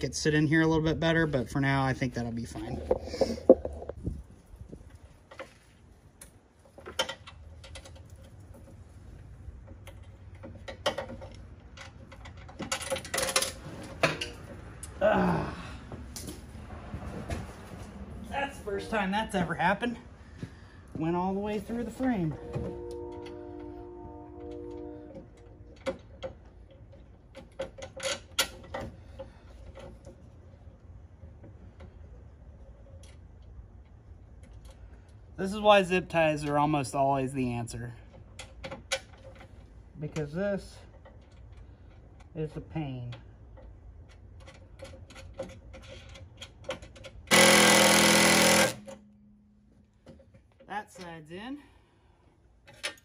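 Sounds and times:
parts clicking and tapping: 0:09.6 - 0:15.0, 0:24.4 - 0:30.3, 0:38.1 - 0:51.2
cordless drill running: 0:47.3 - 0:48.8.

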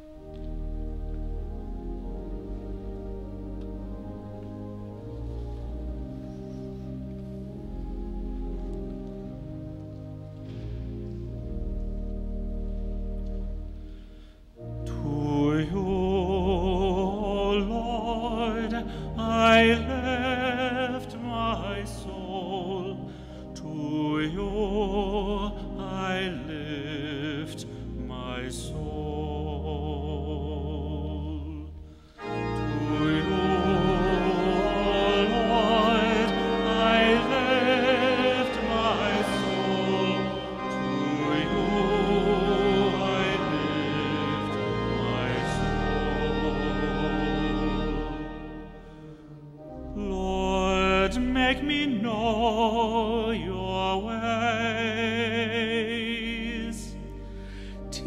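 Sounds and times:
organ: 0:00.0 - 0:58.0
congregation singing: 0:14.6 - 0:58.0.

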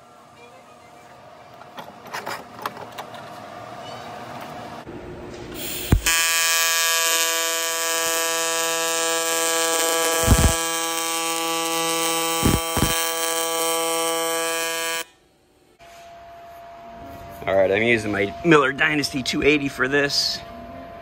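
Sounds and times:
welding arc buzzing: 0:05.6 - 0:15.2.

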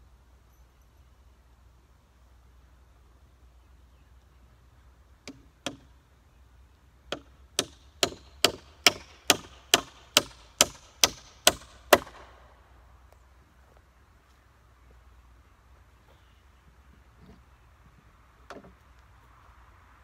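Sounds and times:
hammer driving nail into wood: 0:07.1 - 0:12.2.

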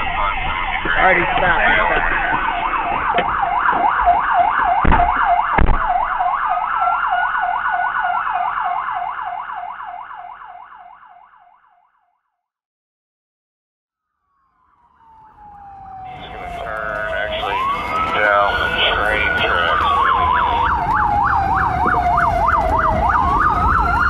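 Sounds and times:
police siren yelping: 0:00.0 - 0:11.8, 0:14.4 - 0:24.0
second siren wail: 0:00.0 - 0:12.0, 0:14.4 - 0:24.0
sharp thumps: 0:04.8 - 0:06.1.

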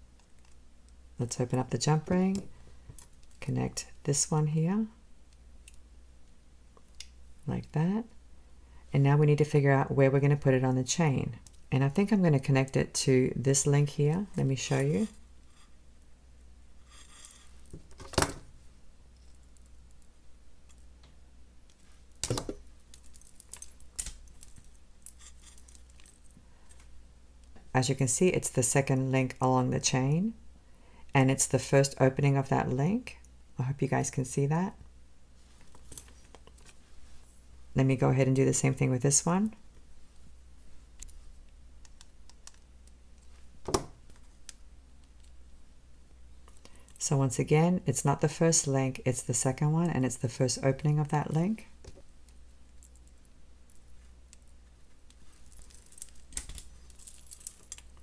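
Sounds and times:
pliers and chain clicking: 0:55.5 - 0:58.0.

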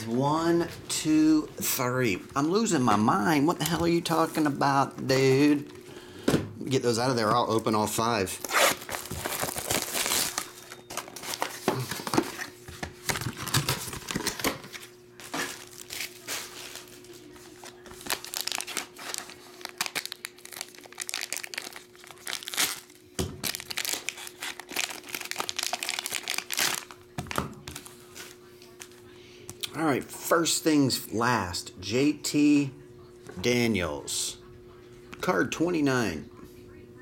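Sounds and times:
foil wrappers crinkling and tearing: 0:08.2 - 0:29.0.

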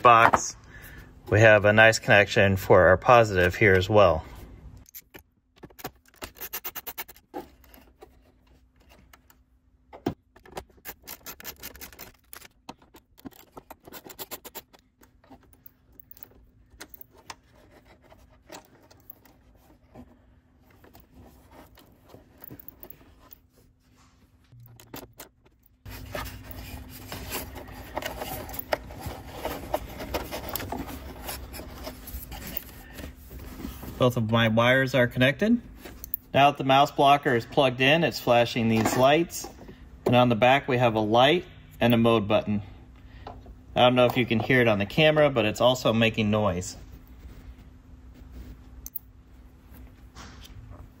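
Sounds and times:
metallic clicks and scrapes: 0:10.4 - 0:20.0.

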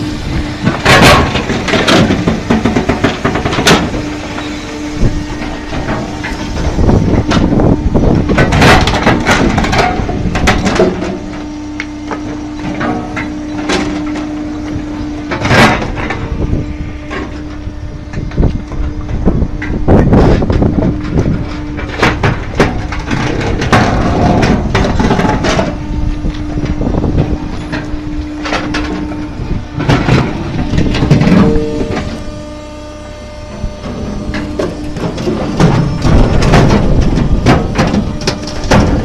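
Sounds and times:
firewood processor humming: 0:00.0 - 0:39.0.

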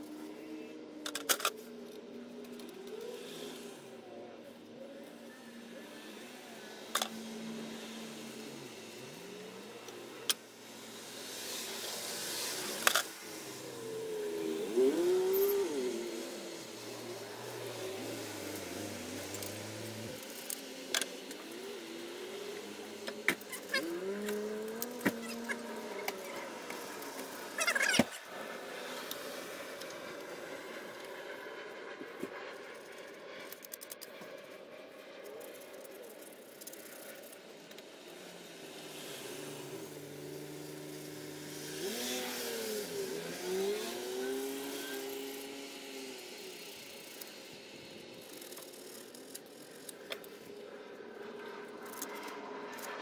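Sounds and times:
vehicle engine passing by: 0:05.2 - 0:33.4.

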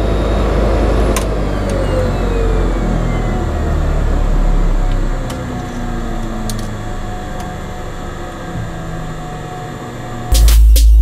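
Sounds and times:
turboprop engine winding down: 0:00.0 - 0:11.0.

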